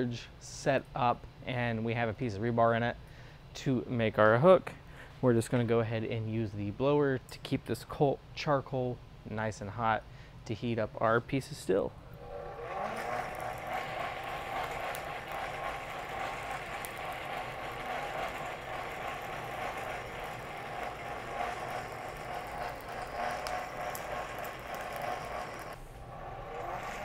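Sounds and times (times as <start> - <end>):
hand-cranked blower whirring: 12.1 - 27.0.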